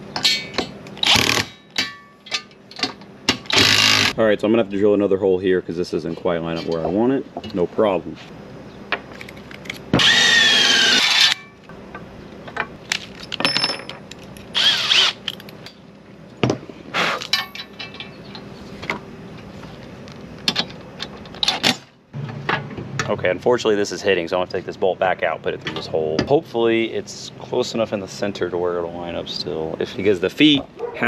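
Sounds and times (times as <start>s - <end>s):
clicks and knocks of parts: 0.1s - 4.1s, 9.0s - 10.0s, 11.1s - 14.6s, 15.2s - 15.8s
power drill whining: 10.0s - 11.4s, 14.6s - 15.2s.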